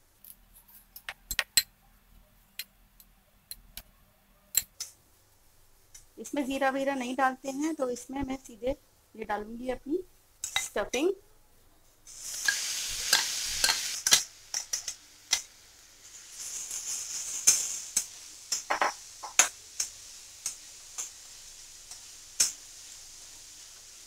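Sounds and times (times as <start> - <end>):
stuffing sizzling in hot oil: 4.6 - 11.2, 12.0 - 24.0
spatula knocking and scraping pan: 18.6 - 19.5.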